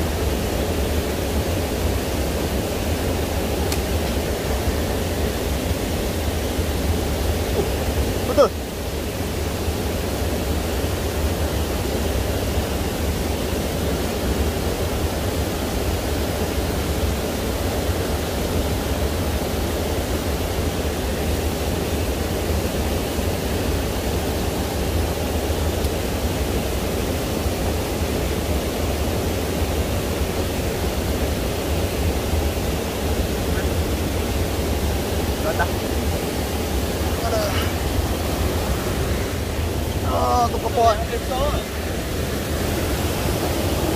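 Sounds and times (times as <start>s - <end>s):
river water rushing over rocks: 0.0s - 43.9s.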